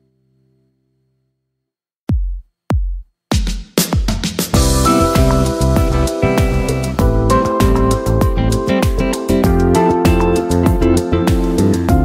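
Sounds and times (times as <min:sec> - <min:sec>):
upbeat music with acoustic guitar: 0:04.0 - 0:12.0.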